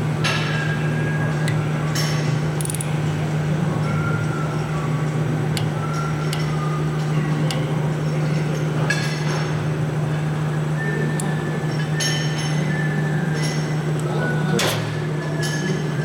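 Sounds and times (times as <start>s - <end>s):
torque wrench clicks: 2.6s - 2.9s.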